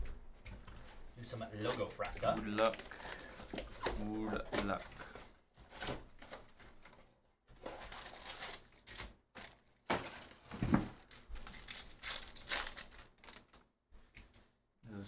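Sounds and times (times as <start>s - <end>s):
plastic wrap crinkling and tearing: 1.6s - 13.6s
foil pack tearing open: 2.2s - 5.2s, 7.6s - 13.6s.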